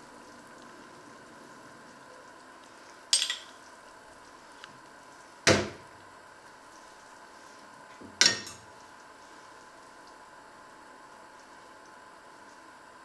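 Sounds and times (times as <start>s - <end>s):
faint steady hum: 0.0s - 13.0s
cutlery clattering against dishes: 3.2s - 3.5s, 8.2s - 8.6s.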